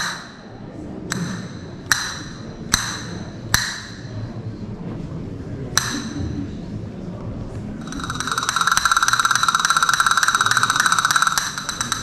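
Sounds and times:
castanet clicks: 8.0s - 12.0s.

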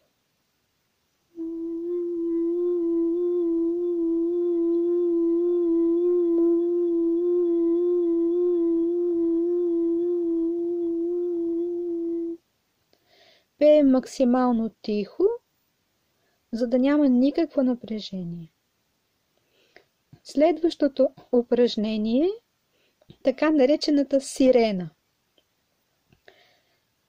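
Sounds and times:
woman humming a steady note: 1.3s - 12.4s.

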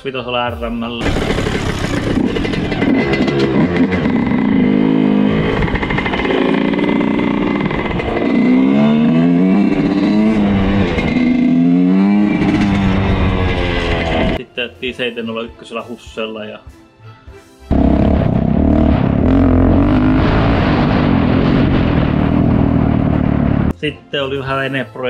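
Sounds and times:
motorcycle engine revving: 1.0s - 14.4s, 17.7s - 23.7s.

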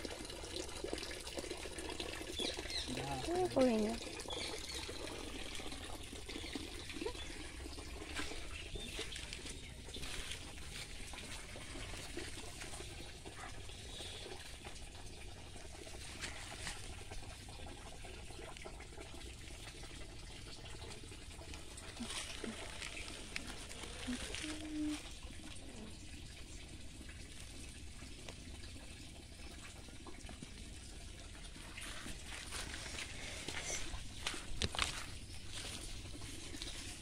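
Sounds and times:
water trickling over ground: 0.0s - 37.0s
faint clicks and rustles: 21.4s - 25.6s.

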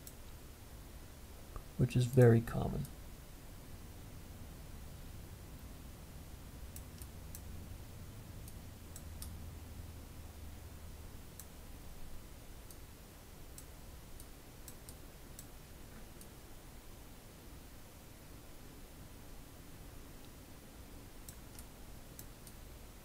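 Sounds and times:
computer mouse clicking: 0.0s - 0.4s, 6.7s - 7.5s, 8.4s - 9.4s, 13.5s - 16.3s, 21.2s - 22.6s
faint low hum: 0.0s - 23.0s.

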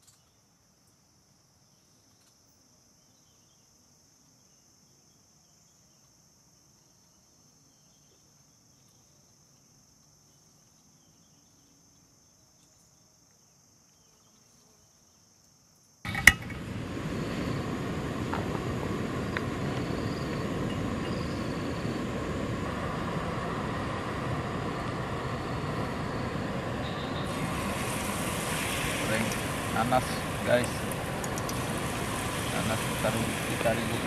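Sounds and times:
crickets chirring: 0.0s - 34.0s
gas stove burner hissing: 16.1s - 34.0s.

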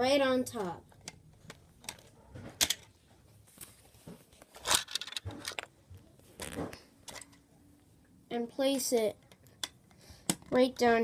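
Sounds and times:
plastic bricks clicking together: 4.6s - 5.7s.

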